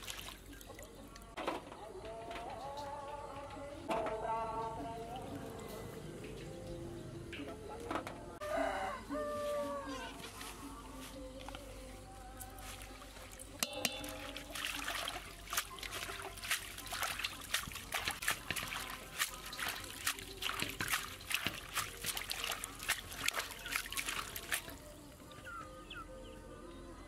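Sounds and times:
hands splashing greens in water: 0.0 - 0.9, 12.5 - 24.9.

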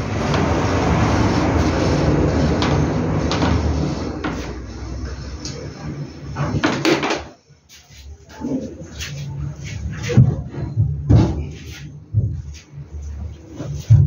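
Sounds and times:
car passing: 0.0 - 6.3.

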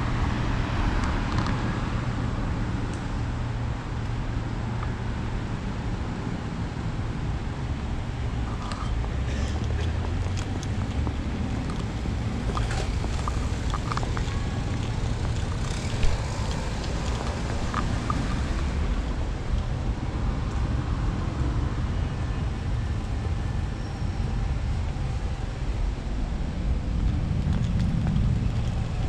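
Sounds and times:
street ambience: 0.0 - 29.0
wind buffeting microphone: 6.8 - 21.9, 22.5 - 29.0.

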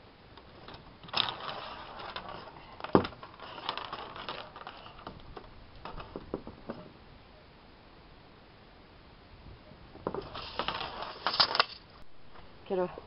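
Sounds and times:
tape measure blade rattling: 0.6 - 5.2, 10.2 - 11.9.

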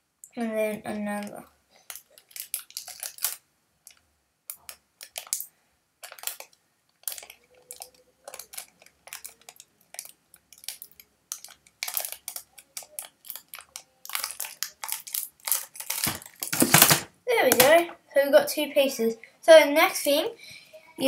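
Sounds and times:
tape crinkling in hands: 1.8 - 17.6.

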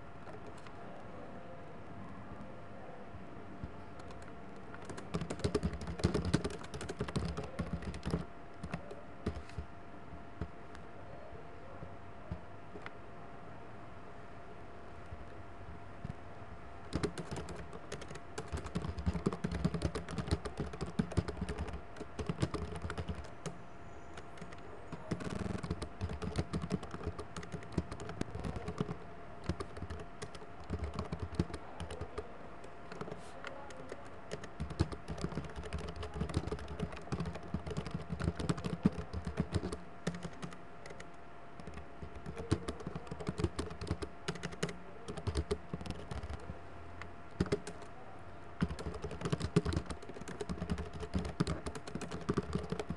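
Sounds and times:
typing on computer keyboard: 4.0 - 9.7, 16.9 - 23.6, 24.2 - 32.2, 32.9 - 46.5, 47.3 - 47.9, 48.6 - 52.9.

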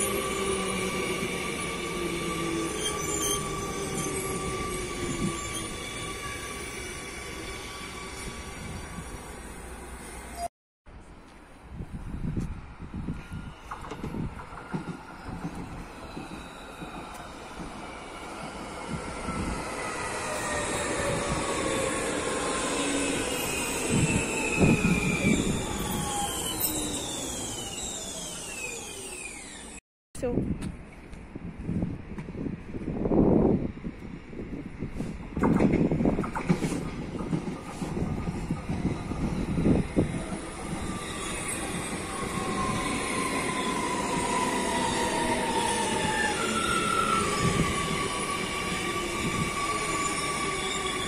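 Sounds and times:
train wheels squealing: 0.0 - 10.5, 13.1 - 29.8, 36.6 - 51.0
train low rumble: 30.2 - 50.0.

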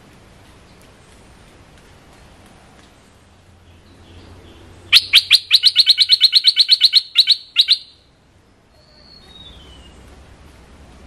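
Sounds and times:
bird chattering call: 4.9 - 8.0.

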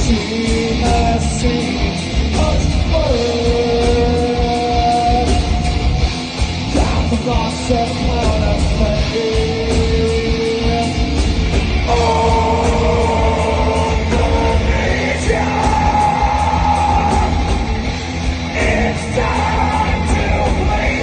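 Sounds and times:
rock band playing: 0.0 - 21.0
singer holding long notes: 11.8 - 21.0.

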